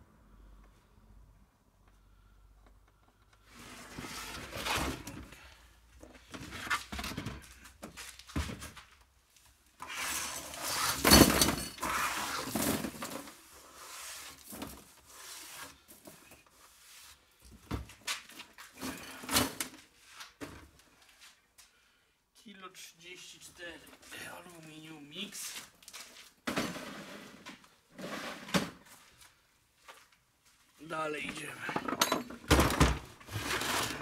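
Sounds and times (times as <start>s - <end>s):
plastic crate knocking and scraping: 26.4s - 28.9s.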